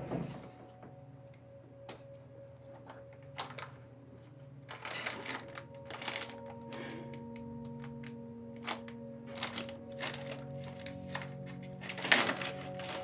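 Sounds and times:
quiet music of long notes: 0.0s - 13.0s
plastic bag crinkling: 2.8s - 3.8s, 4.6s - 13.0s.

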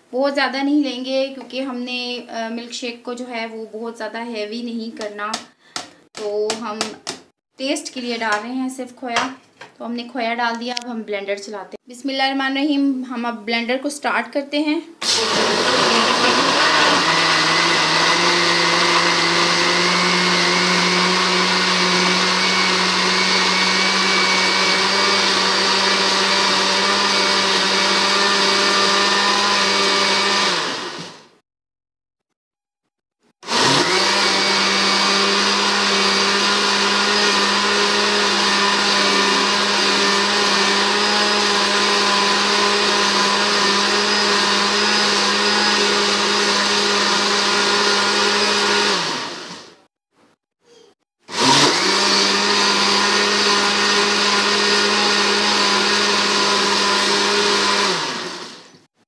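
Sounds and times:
electric blender running: 15.0s - 31.4s, 33.4s - 49.9s, 51.3s - 58.8s.

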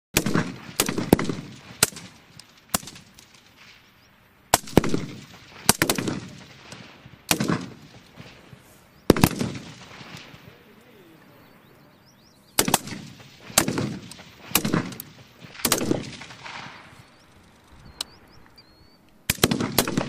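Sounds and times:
rifle shots with echo: 0.2s - 3.9s, 4.5s - 10.8s, 12.5s - 17.4s, 19.2s - 20.0s.

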